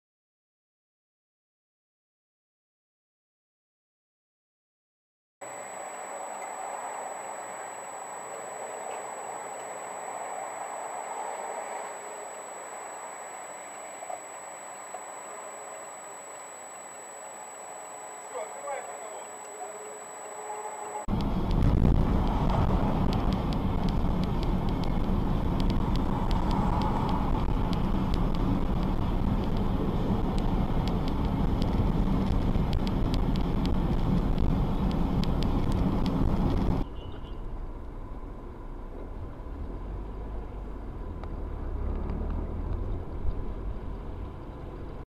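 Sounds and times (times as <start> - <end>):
road and engine rumble: 5.4 - 45.0
faint ticks: 5.8 - 36.8
low rumble from another car: 21.1 - 45.0.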